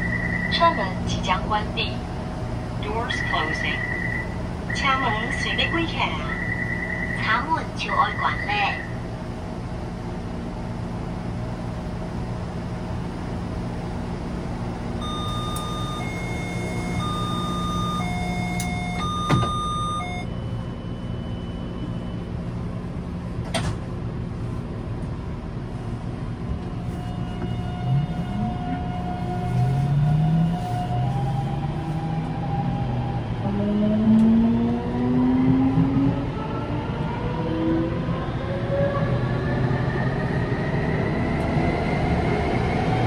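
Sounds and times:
train low hum: 0.0s - 43.0s
door-closing chime beeps: 15.0s - 20.3s
traction motors whining: 15.0s - 20.3s
train doors knocking shut: 18.6s - 19.8s.

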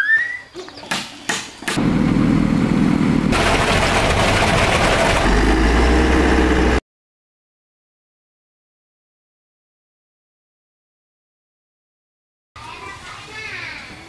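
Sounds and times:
concrete mixer engine running: 1.8s - 6.8s
deep hum: 1.8s - 6.8s
concrete pouring down chute: 3.4s - 5.5s.

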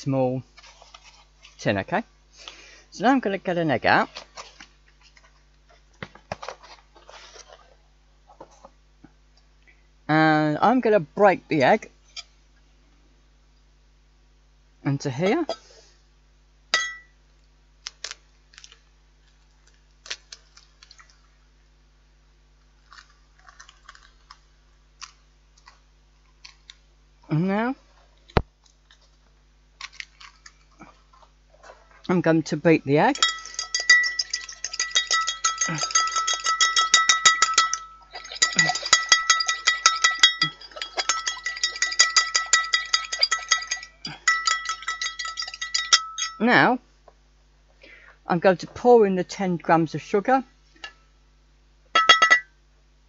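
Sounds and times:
eggshell crunching and clicking: 22.6s - 26.8s
utensil clinking in bowl: 33.1s - 46.4s, 52.0s - 52.5s.

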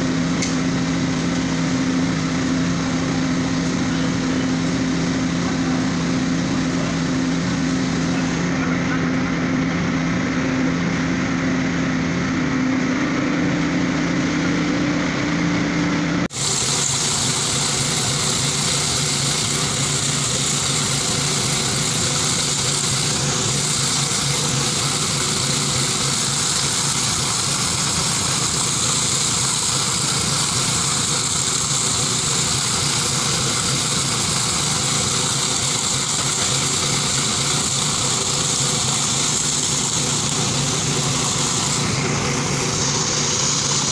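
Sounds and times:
small petrol engine running: 0.0s - 43.9s.

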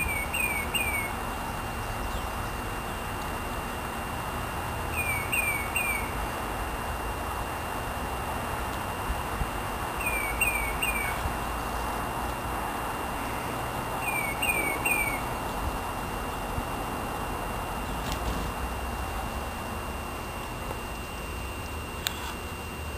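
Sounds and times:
songbird chirping: 0.0s - 1.2s, 4.9s - 6.2s, 10.0s - 11.3s, 13.2s - 15.3s.

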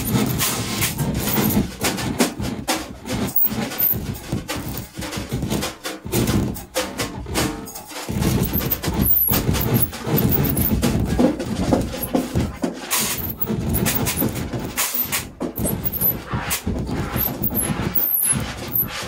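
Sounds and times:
scraping and clattering noise music: 0.0s - 19.0s
high squeaking glides: 3.1s - 4.9s, 8.1s - 10.9s, 13.0s - 19.0s.

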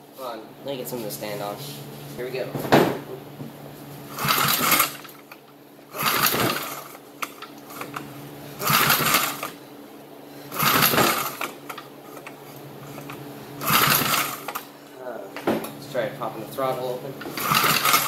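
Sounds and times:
engine cranking over: 4.1s - 9.6s, 10.5s - 14.8s, 17.2s - 18.0s
recoil starter rope rasping: 4.1s - 9.6s, 10.5s - 14.8s, 17.2s - 18.0s.

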